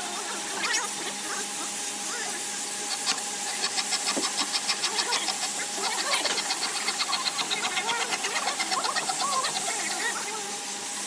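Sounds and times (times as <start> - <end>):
fast even ticking: 3.0 - 10.0.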